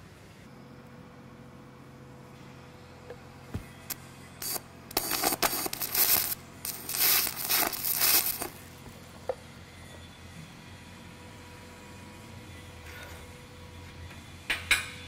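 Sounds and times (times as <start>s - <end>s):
welding arc crackling and hissing: 3.8s - 8.8s.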